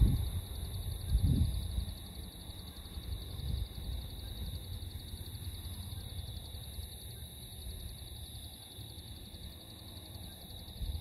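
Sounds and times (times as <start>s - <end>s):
wind rumbling on microphone: 0.0s - 2.4s, 3.0s - 5.1s
high insect drone: 0.0s - 11.0s
insects trilling: 0.0s - 11.0s.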